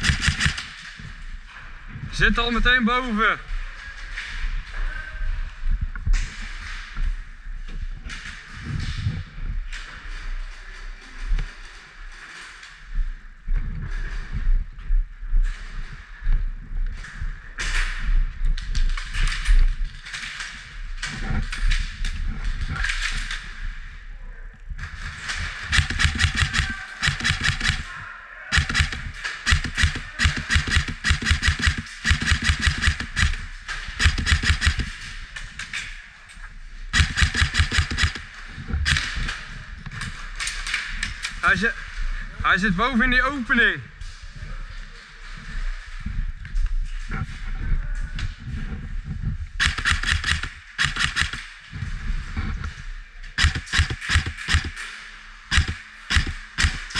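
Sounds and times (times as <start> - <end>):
airsoft rifles firing bursts: 0.0 - 0.8, 25.6 - 35.0, 36.9 - 39.3, 49.6 - 51.5, 53.4 - 54.9, 55.5 - 56.9.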